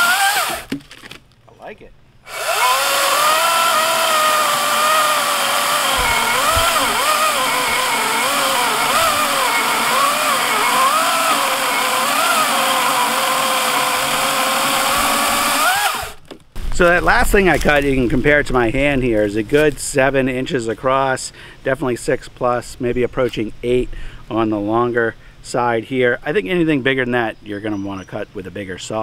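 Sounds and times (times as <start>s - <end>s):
electric chainsaw cutting log: 0.0s - 0.7s, 2.3s - 16.2s.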